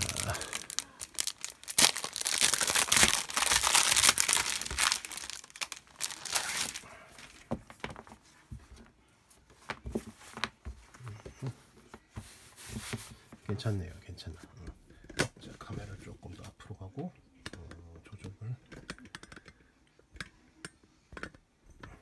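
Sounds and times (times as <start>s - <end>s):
plastic packaging crinkling: 0.0s - 7.5s
soft taps and rustles: 7.2s - 14.8s.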